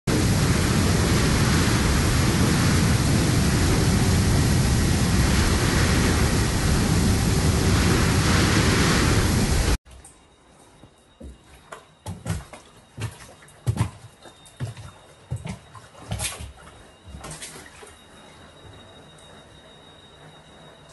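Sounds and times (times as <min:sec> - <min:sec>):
deep rumble: 0:00.1 - 0:09.8
rain: 0:00.1 - 0:10.2
wind: 0:00.1 - 0:20.9.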